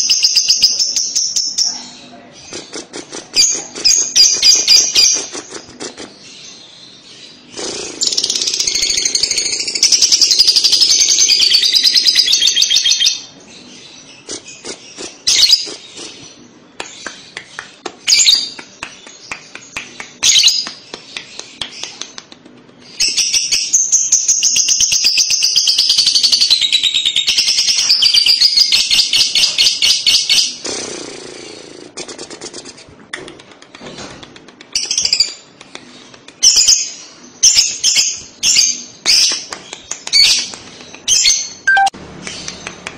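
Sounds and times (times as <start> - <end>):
bird high-pitched chattering: 0.0 - 6.5, 7.4 - 13.2, 14.1 - 18.6, 34.7 - 42.6
bird chirps and clicks: 16.8 - 23.2, 33.1 - 37.0, 37.8 - 42.9.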